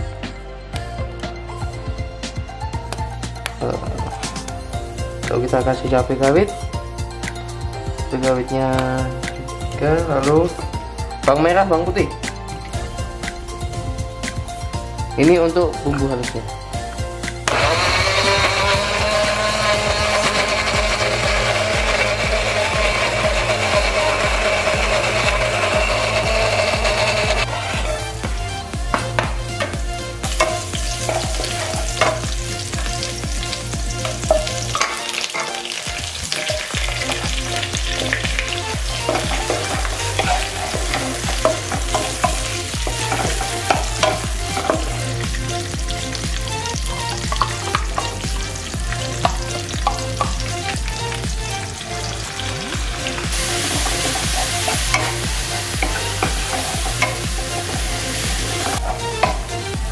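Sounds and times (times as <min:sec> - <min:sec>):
food sizzling in hot oil: 0:17.2 - 0:59.9
spatula scraping and knocking pan: 0:28.9 - 0:35.6, 0:36.3 - 0:45.0, 0:53.3 - 0:59.5.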